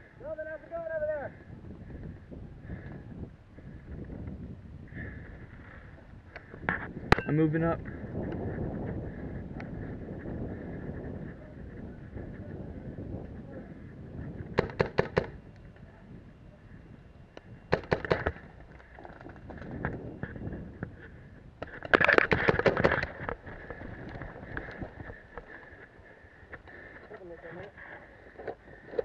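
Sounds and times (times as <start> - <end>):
paintball markers firing: 14.6 - 15.4, 17.7 - 18.4, 21.6 - 23.2.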